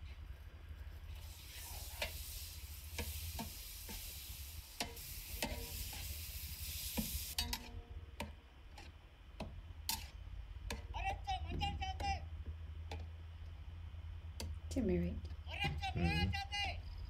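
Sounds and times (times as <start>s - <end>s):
meat sizzling in a pan: 1.2s - 7.6s
spoon scraping and knocking pan: 4.8s - 6.2s.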